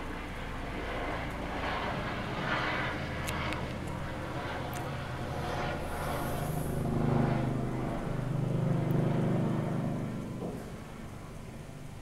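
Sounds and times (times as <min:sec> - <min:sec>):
helicopter flying overhead: 0:00.0 - 0:12.0.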